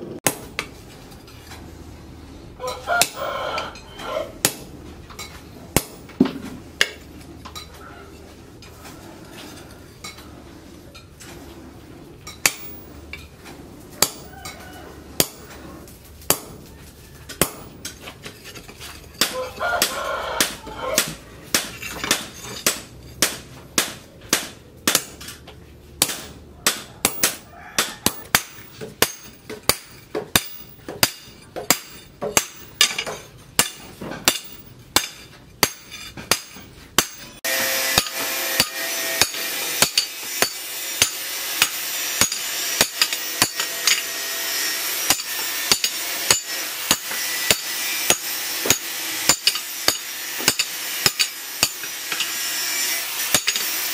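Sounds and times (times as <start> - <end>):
hammer ringing on steel: 26.0 - 44.1.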